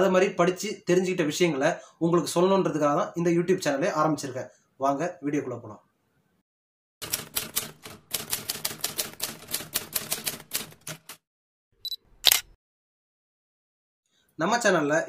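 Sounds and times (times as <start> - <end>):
typewriter key strikes: 7.0 - 11.2.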